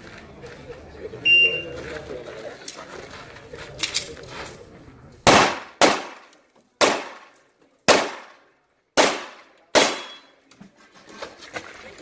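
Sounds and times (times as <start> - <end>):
pistol shots: 5.2 - 7.3, 7.9 - 8.4, 9.0 - 10.3.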